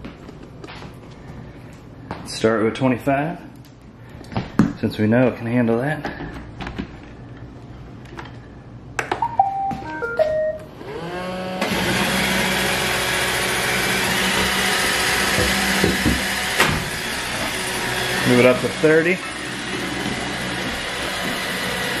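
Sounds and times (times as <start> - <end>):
beeping start-up notes: 9.2 - 10.8
robot vacuum motor whirring: 10.8 - 22.0.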